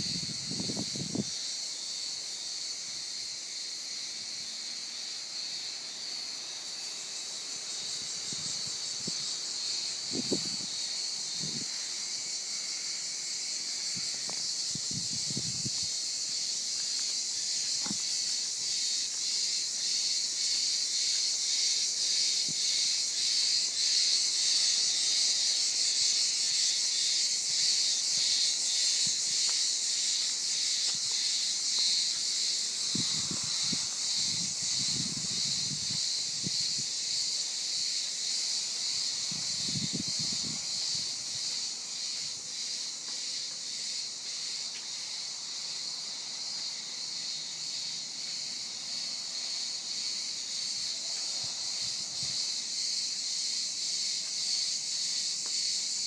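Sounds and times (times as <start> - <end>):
cicadas chorus: 0.0 - 56.0.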